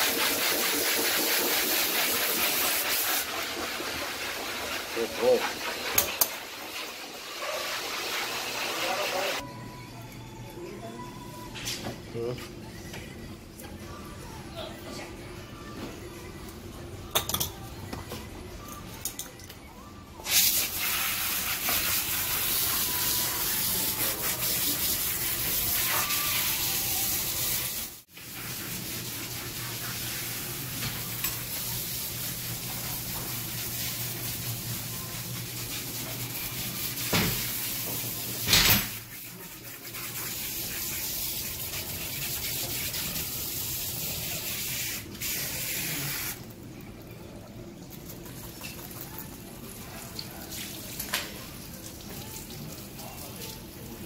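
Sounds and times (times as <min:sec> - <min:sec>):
shower sprayer hissing: 0:00.0 - 0:09.4, 0:20.2 - 0:46.5.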